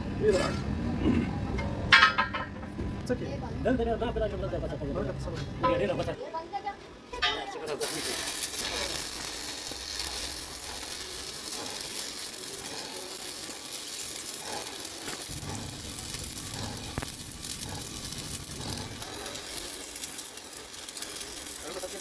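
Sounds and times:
welding arc crackling: 7.3 - 22.0.

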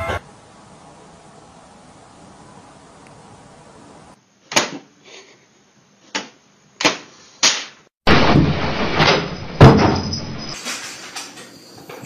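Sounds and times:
burst of noise: 8.1 - 10.6.

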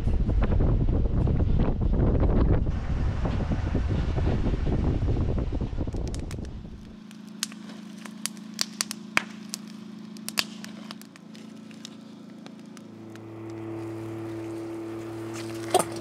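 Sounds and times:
wind noise on microphone: 0.0 - 7.0
campfire crackling: 4.3 - 16.0.

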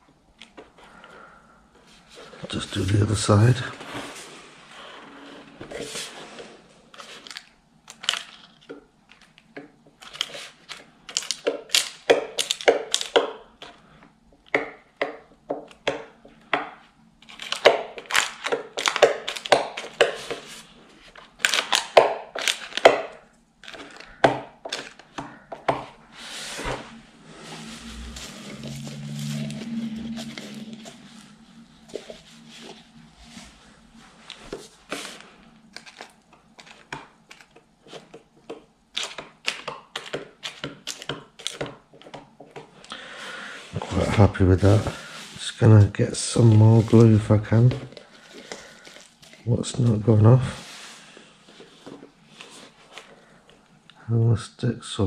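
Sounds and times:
low hum: 25.9 - 35.8.

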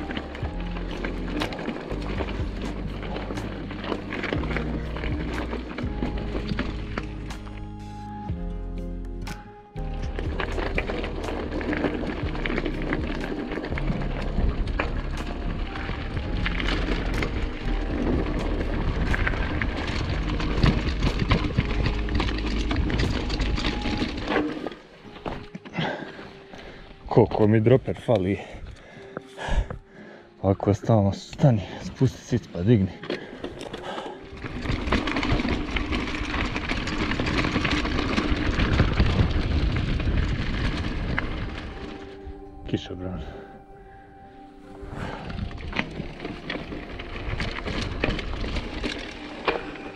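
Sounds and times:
bike tyres on rough gravel: 0.0 - 49.9
wind rumbling on microphone: 10.2 - 24.3, 34.3 - 42.6, 44.7 - 49.9
wind buffeting microphone: 36.6 - 42.5.

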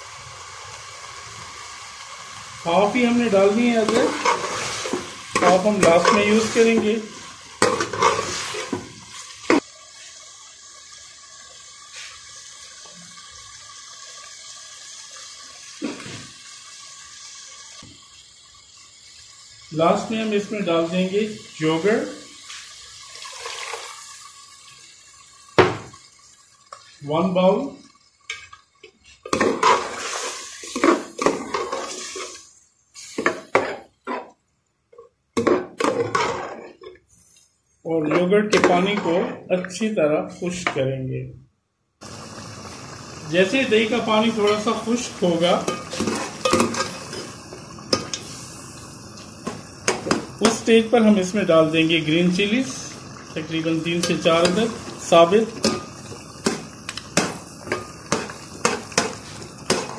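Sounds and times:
meat and stock sizzling: 0.0 - 40.8, 42.0 - 59.9
metal spoon stirring in metal pot: 3.4 - 8.9, 28.2 - 32.5, 44.4 - 48.4, 53.9 - 59.9
spoon scraping metal pot: 7.6 - 8.8, 45.6 - 47.3.

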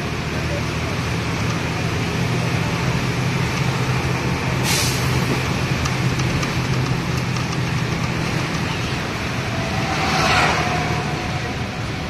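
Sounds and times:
road noise: 0.0 - 12.0
vehicle engine running: 0.0 - 12.0
sharp hiss: 4.6 - 5.2.

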